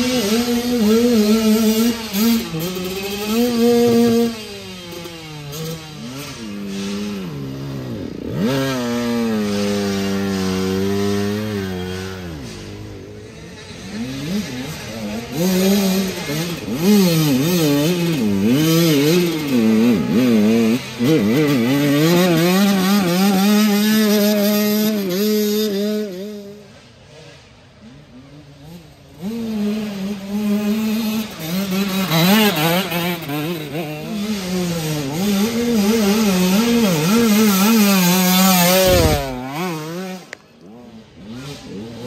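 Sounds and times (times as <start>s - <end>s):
dirt bike engines revving: 0.0s - 42.0s.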